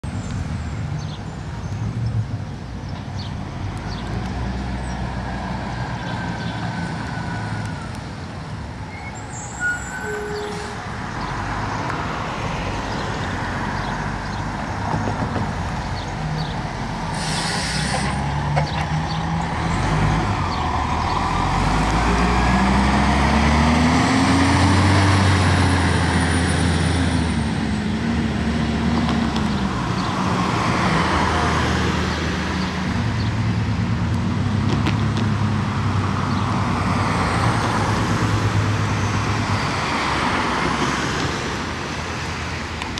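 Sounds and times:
tyres on wet pavement: 0.0s - 42.9s
diesel engine revving: 15.4s - 41.7s
air brake hiss: 17.1s - 18.2s.

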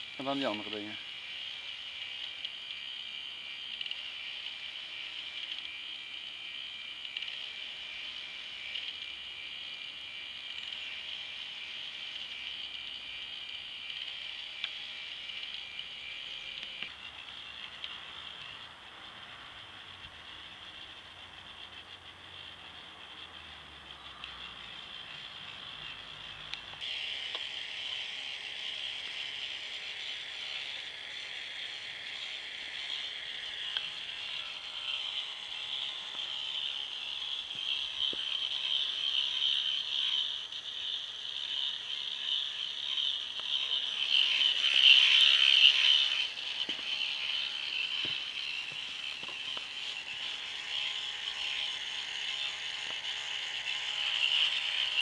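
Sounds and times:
electric motor whining: 0.0s - 55.0s
plastic gear rattle: 31.7s - 55.0s.

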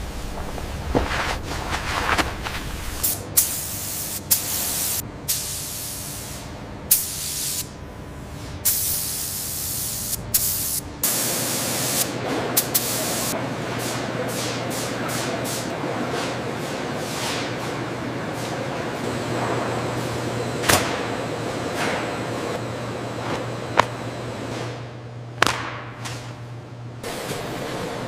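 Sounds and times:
hissing sprays: 2.0s - 7.6s.

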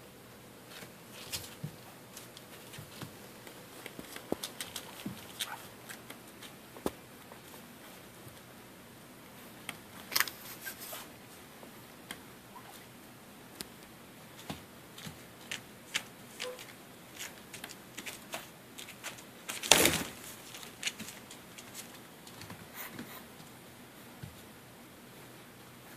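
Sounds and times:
puppy paws scuffling on padding: 0.7s - 8.5s, 14.3s - 23.5s
thump and rustle: 19.5s - 20.2s.

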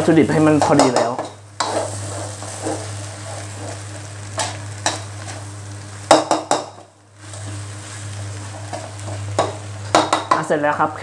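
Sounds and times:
rice sizzling: 0.0s - 11.0s
spatula scraping rice in wok: 0.4s - 5.6s
spatula clacking on wok: 8.7s - 10.5s.

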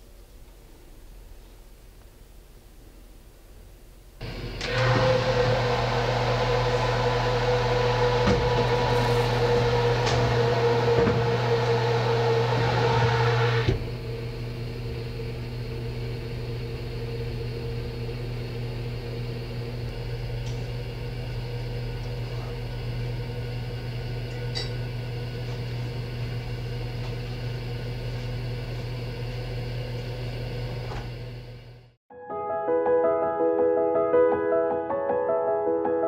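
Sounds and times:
oven fan humming: 4.2s - 32.0s.

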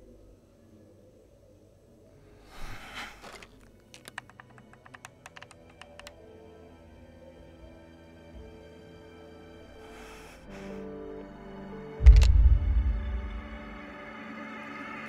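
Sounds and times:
soft music: 2.3s - 15.0s
brief rustle: 2.6s - 6.1s
telephone key clicks: 3.9s - 6.2s.

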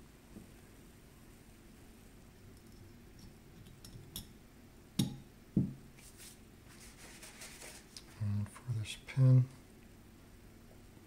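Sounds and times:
dull knocks on bench: 5.6s - 5.8s.

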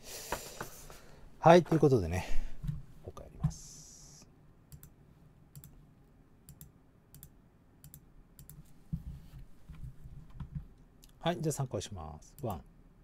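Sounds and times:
computer mouse clicking: 4.7s - 4.9s, 5.5s - 5.8s, 6.5s - 8.7s.

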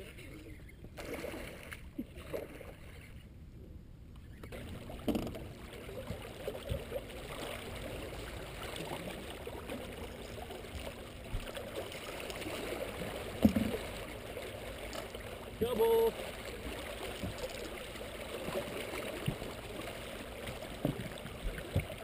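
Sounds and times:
water lapping against boat hull: 0.0s - 3.3s, 4.1s - 22.0s
knocks on boat: 5.0s - 5.4s.

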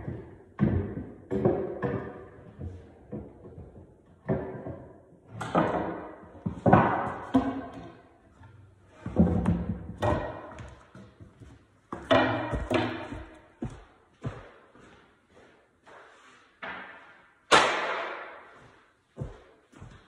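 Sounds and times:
wooden knocks and thumps: 0.0s - 14.4s.

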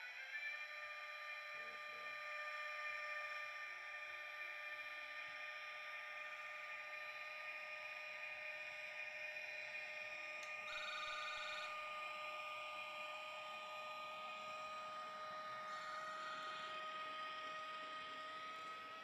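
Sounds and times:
electric locomotive traction whine: 0.0s - 19.0s
click: 10.4s - 10.6s.

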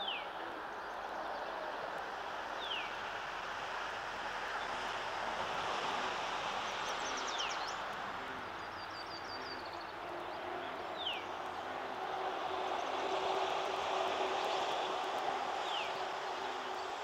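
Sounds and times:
steady rushing noise: 0.0s - 17.0s
songbirds singing: 6.6s - 17.0s.

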